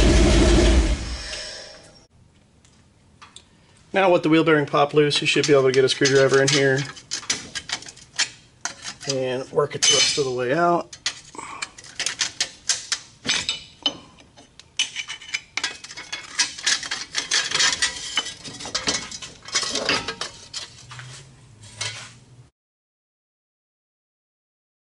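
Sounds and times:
metal clinks and scrapes: 5.2s - 22.2s.

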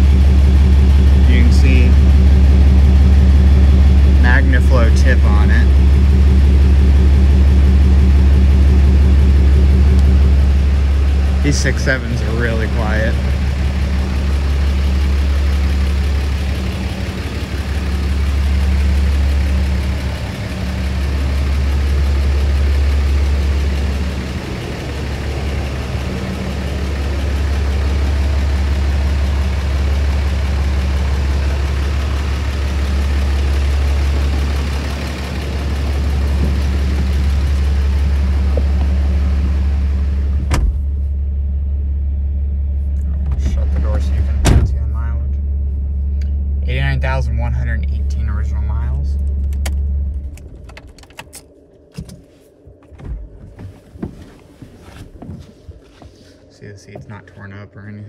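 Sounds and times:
diesel engine idling: 0.0s - 51.9s
car door shutting: 40.4s - 41.0s, 43.1s - 44.8s.

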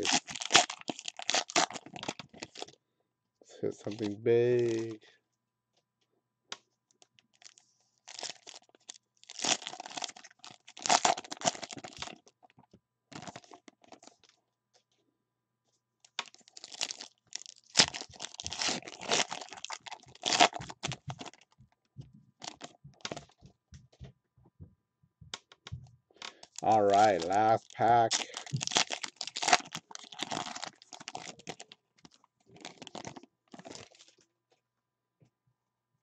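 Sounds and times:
cards rustling: 0.0s - 2.7s, 3.9s - 5.0s, 17.7s - 21.4s, 26.2s - 34.2s
foil wrapper tearing and crinkling: 0.0s - 2.7s, 3.9s - 5.0s, 7.3s - 12.4s, 13.1s - 14.3s, 16.0s - 21.6s, 22.4s - 23.4s, 26.2s - 34.2s.

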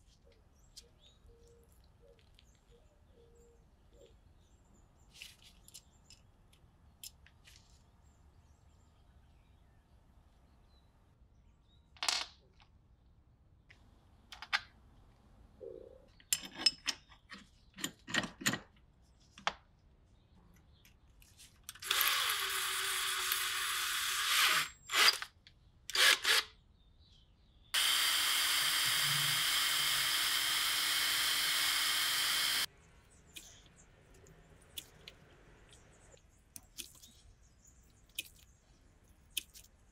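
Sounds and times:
metallic clicks and knocks: 16.2s - 18.8s
electric drill drilling metal: 21.8s - 25.3s, 25.9s - 26.5s, 27.8s - 32.7s.

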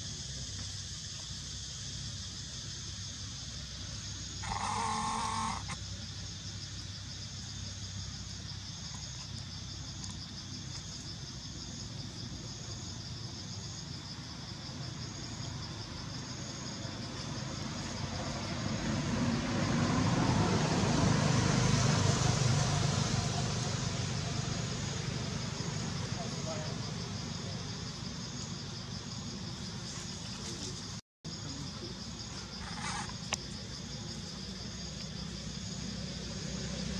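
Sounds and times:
pulsing insect chorus: 0.0s - 36.9s
motor vehicle passing: 16.8s - 27.8s, 32.4s - 36.9s.

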